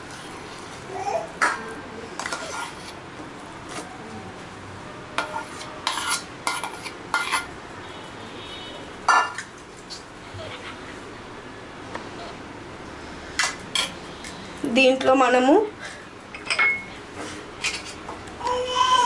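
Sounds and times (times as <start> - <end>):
spoon scraping metal bowl: 2.2 - 3.0, 5.2 - 7.5, 13.4 - 14.0.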